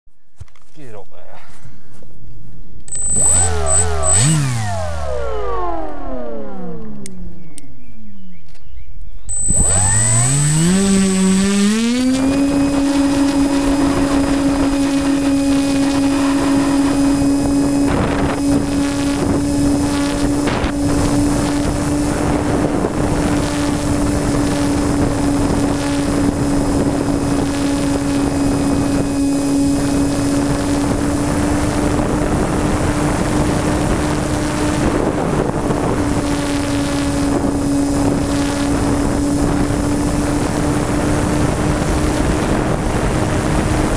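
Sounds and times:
model plane motor droning: 2.9s - 7.8s, 9.3s - 43.9s
wind rushing over microphone: 9.4s - 43.9s.

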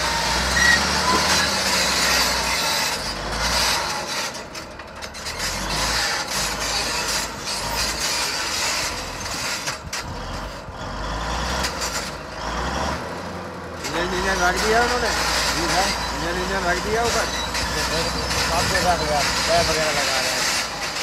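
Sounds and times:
bulldozer diesel engine under load: 0.0s - 21.0s.

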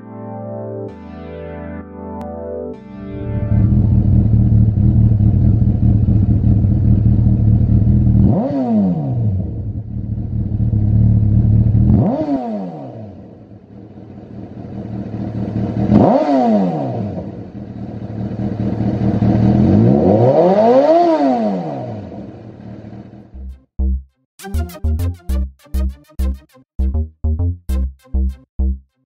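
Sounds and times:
motorcycle engine idling and revving: 3.2s - 23.5s.

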